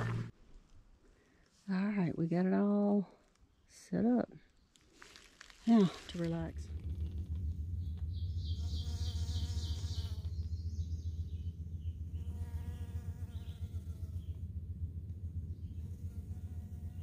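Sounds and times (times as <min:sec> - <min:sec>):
bird trilling: 0:07.8 - 0:12.4
bees buzzing: 0:08.4 - 0:10.5.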